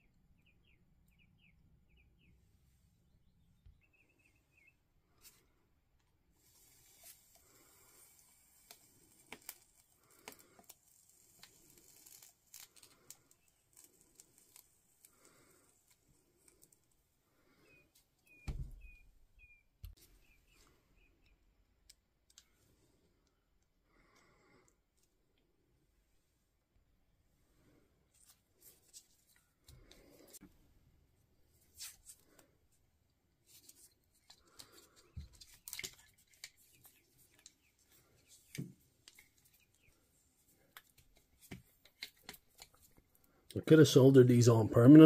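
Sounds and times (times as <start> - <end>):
wire connectors clicking and rustling: 8.2 - 17.0, 33.5 - 39.9, 40.5 - 43.6.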